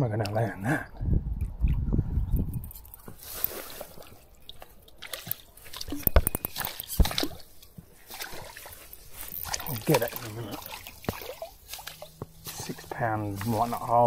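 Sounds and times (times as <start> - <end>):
fish splashing at water surface: 3.2 - 13.8.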